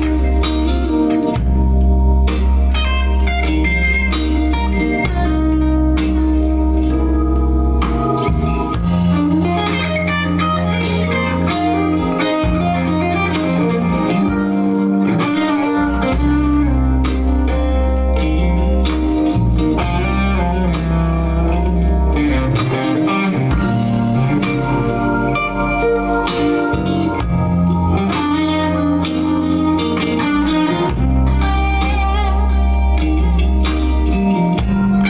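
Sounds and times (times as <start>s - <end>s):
bass line: 0.0s - 35.0s
bluesy electric guitar lead: 0.0s - 35.0s
steady beat: 0.0s - 35.0s.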